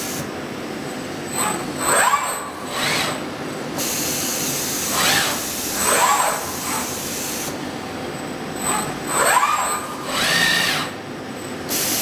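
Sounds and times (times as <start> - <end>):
servo motors whining: 1.4 - 3.2, 4.7 - 7.5, 8.6 - 11.0.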